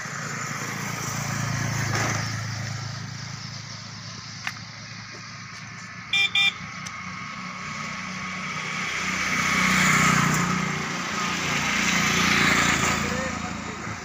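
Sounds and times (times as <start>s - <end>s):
motorcycle horn beeps: 6.1s - 6.7s
motorcycle engine passing by: 7.0s - 14.0s.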